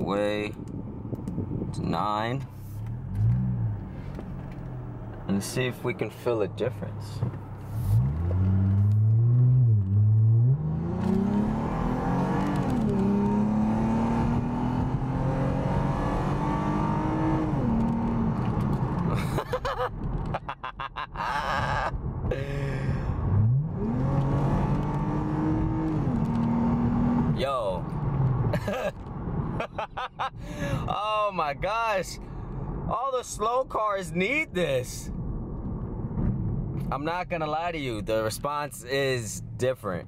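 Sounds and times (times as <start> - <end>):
car engine accelerating: 2.8 - 19.2, 22.4 - 29.6.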